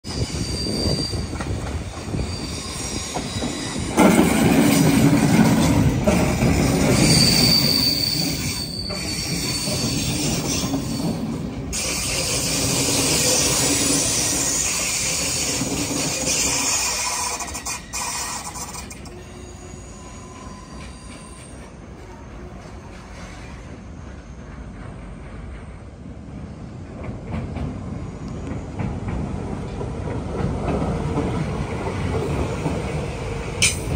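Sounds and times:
train wheels rumbling on rail: 0.0 - 33.9
high-pitched wheel squeal: 0.1 - 4.1, 6.5 - 24.4.

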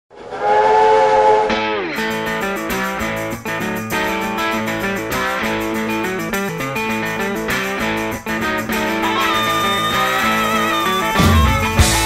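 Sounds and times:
steam locomotive whistle: 0.2 - 1.7
guitar blues music: 1.5 - 12.0.

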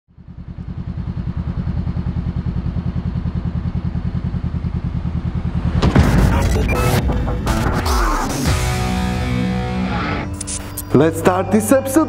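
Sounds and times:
motorcycle engine idling: 0.1 - 6.1.

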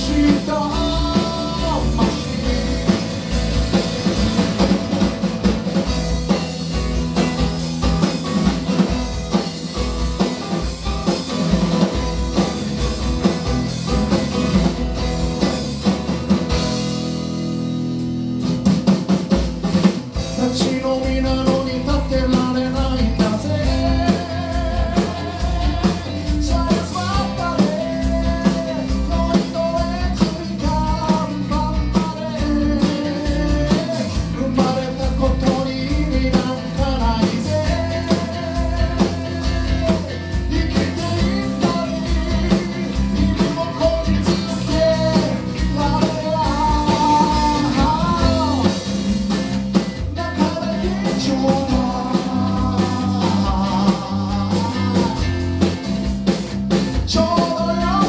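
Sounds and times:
man singing: 0.0 - 5.0, 20.1 - 56.1, 56.7 - 58.0
live band playing: 0.0 - 58.0.

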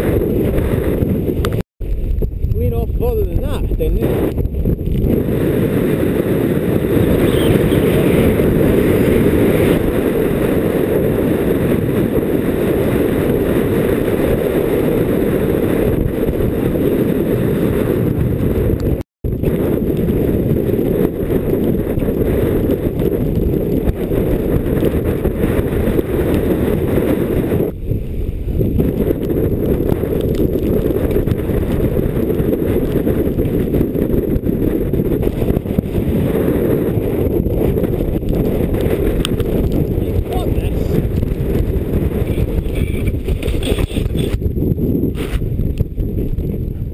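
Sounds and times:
wind buffeting microphone: 0.0 - 46.9.

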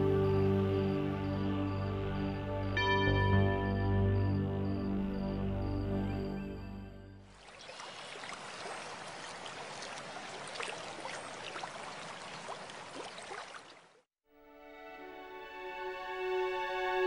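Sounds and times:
small water splashes: 7.3 - 14.1
stream rushing over rocks: 7.4 - 13.9.

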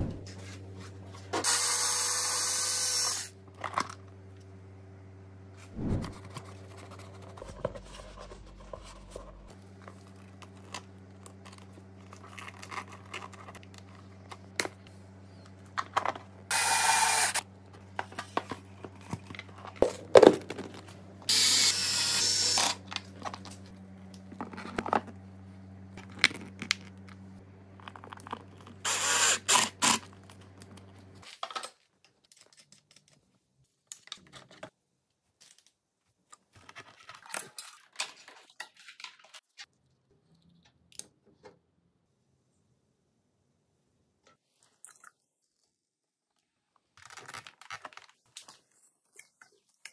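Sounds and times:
power tool bursts: 1.4 - 3.3, 16.5 - 17.4, 21.3 - 22.8, 28.8 - 30.0.

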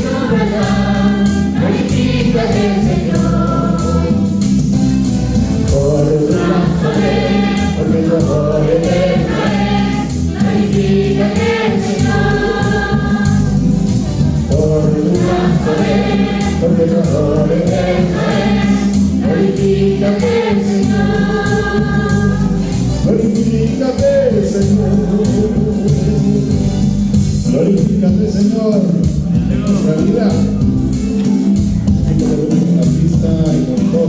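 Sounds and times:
choir singing gospel song: 0.0 - 27.0
instrumental accompaniment: 0.0 - 34.0.

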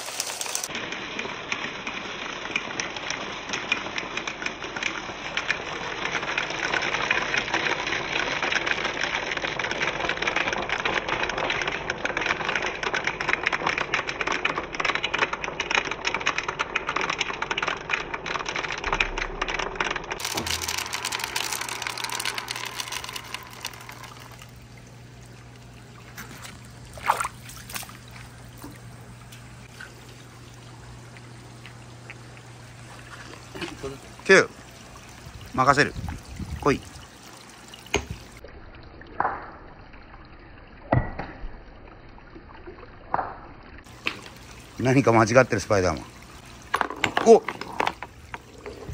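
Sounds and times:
water trickling down marble run: 0.0 - 48.9
faint steady hum: 18.6 - 38.5.

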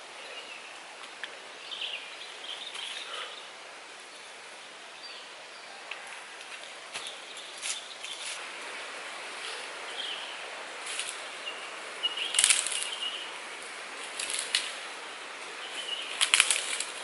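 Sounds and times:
steady high hiss: 0.0 - 17.0
brief crackles: 12.2 - 13.0, 14.0 - 14.8, 16.1 - 17.0.

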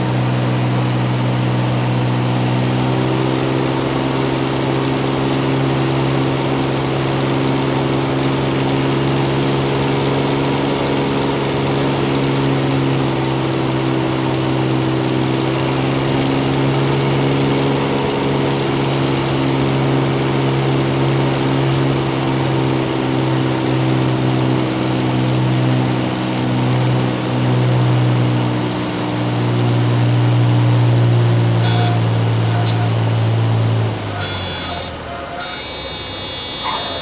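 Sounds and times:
propeller plane engine running: 0.0 - 37.0
stall warning horn: 31.5 - 37.0.

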